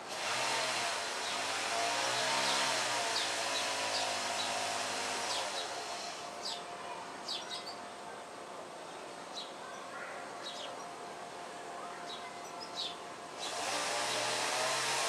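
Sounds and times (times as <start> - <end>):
machine motor whooshing and humming: 0.1 - 6.4, 13.4 - 15.0
small birds chirping: 1.2 - 7.9, 12.0 - 15.0.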